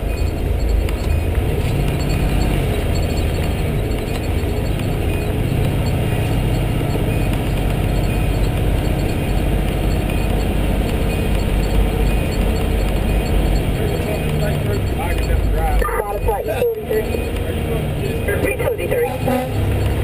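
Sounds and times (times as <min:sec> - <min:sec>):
diesel engine humming: 0:00.0 - 0:20.0.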